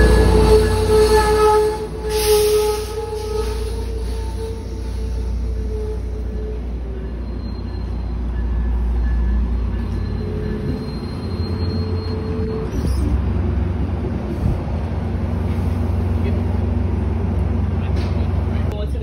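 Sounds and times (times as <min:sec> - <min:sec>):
train rumbling on rails: 0:00.0 - 0:19.0
faint wheel squeals: 0:05.6 - 0:13.2.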